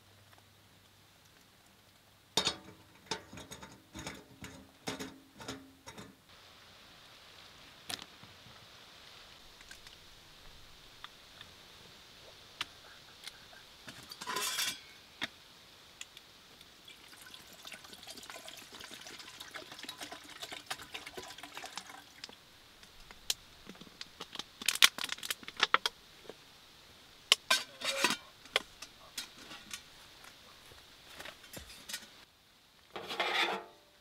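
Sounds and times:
metallic clinks of kettle lid: 14.1 - 14.9
water pouring into metal kettle: 16.8 - 22.4
plastic bottle crackle: 21.7 - 26.0.

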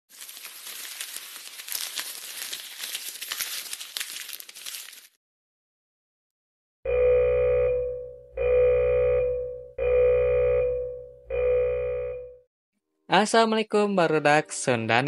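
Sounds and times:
long electronic beep: 6.9 - 12.4.

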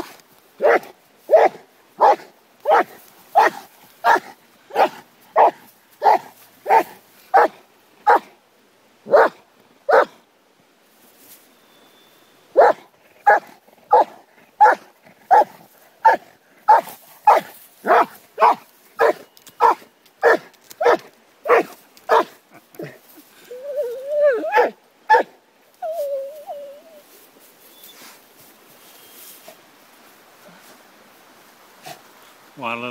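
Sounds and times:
dog barking: 0.6 - 8.3, 9.1 - 10.2, 12.6 - 22.9, 24.4 - 25.3
dog whining: 22.8 - 27.0.

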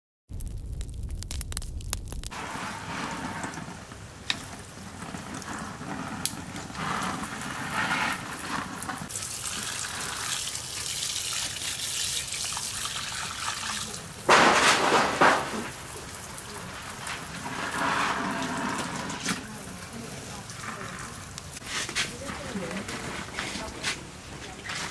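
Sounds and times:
low rumble: 0.3 - 2.7
hose water splashing on fish: 2.2 - 24.9.

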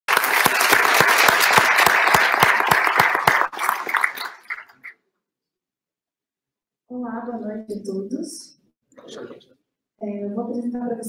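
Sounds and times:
audience applause: 0.1 - 4.9.

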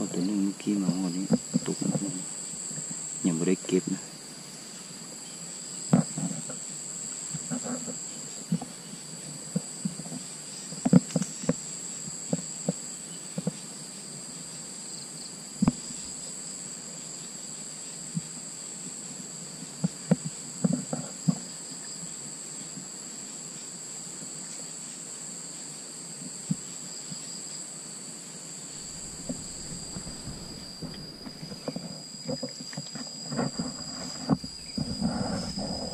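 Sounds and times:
high-pitched insect drone: 0.0 - 35.9
rustling through tall grass: 28.6 - 32.2.

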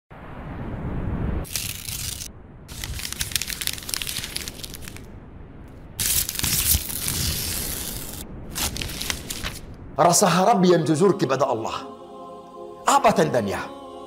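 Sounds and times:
paper crumpling and tearing: 1.5 - 5.1, 6.0 - 9.7.

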